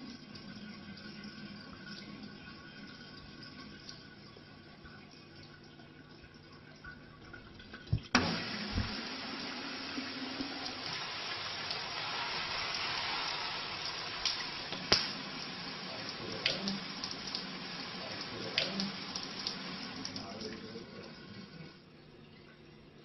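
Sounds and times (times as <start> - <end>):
shower water spraying on tiles: 8.3 - 21.6.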